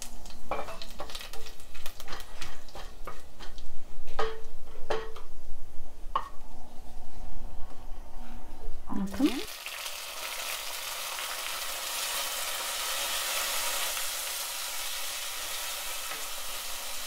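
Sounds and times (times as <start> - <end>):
spices crackling in hot oil: 0.0 - 3.9, 9.1 - 17.0
wooden spatula scraping pan: 1.7 - 3.6.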